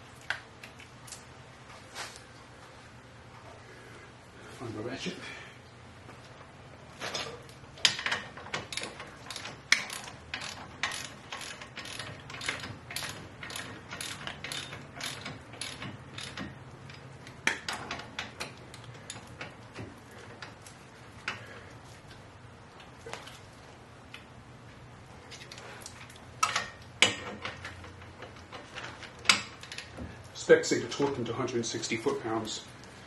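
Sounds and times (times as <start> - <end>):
socket ratchet clicking: 8.7 - 16.5.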